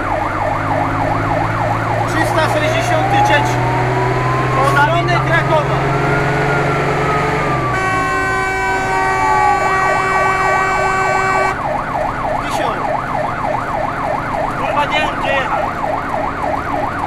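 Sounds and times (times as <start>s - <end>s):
fire engine siren: 0.0s - 17.0s
horn blast: 7.6s - 11.6s.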